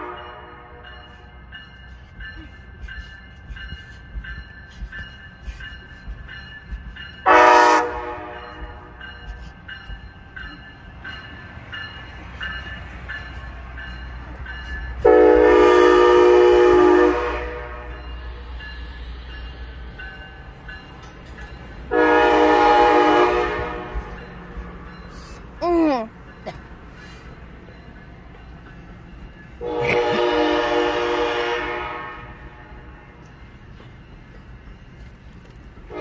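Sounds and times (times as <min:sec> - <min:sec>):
locomotive air horn blasts: 0:00.0 - 0:00.9, 0:07.2 - 0:09.0, 0:15.0 - 0:18.0, 0:21.9 - 0:24.1, 0:29.6 - 0:32.7
passing train rumble: 0:00.0 - 0:36.0.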